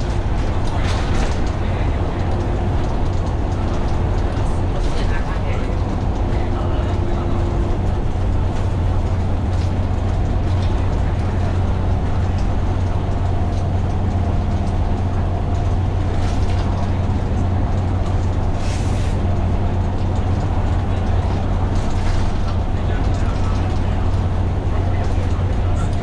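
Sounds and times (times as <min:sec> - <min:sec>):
bus diesel engine droning: 0:00.0 - 0:26.0.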